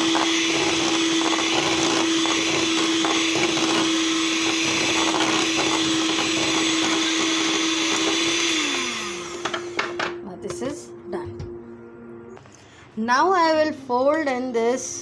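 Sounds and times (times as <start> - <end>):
electric hand mixer whisking batter: 0.0 - 10.2.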